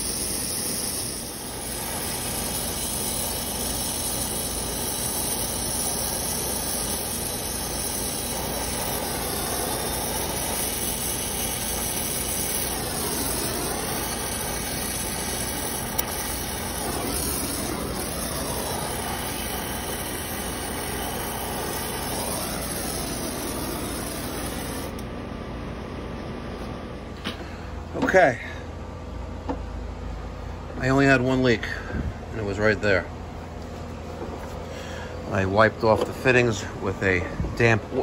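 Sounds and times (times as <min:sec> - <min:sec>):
torch flame hissing: 0:00.0 - 0:25.0.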